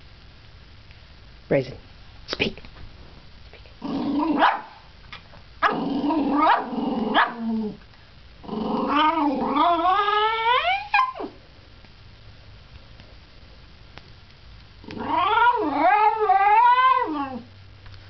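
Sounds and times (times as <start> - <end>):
dog growl-like calls: 5.6 - 7.8, 8.4 - 11.4, 14.8 - 17.5.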